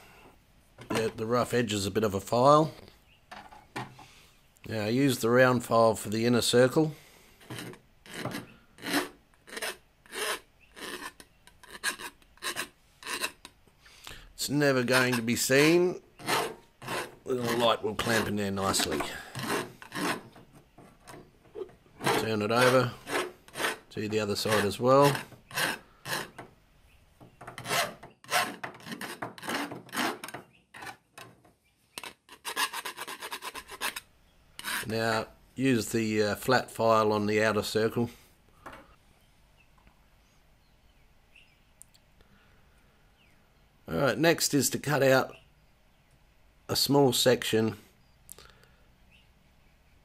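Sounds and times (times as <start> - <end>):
file rasping on steel: 7.4 - 13.5, 14.7 - 20.4, 21.6 - 26.4, 27.6 - 31.0, 32.0 - 34.0, 34.6 - 34.9.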